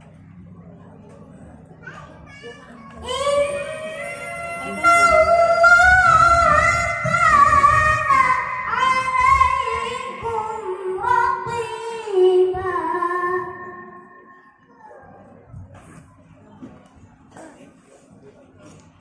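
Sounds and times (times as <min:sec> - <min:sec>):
boy chanting into a microphone: 0:02.6 - 0:15.2.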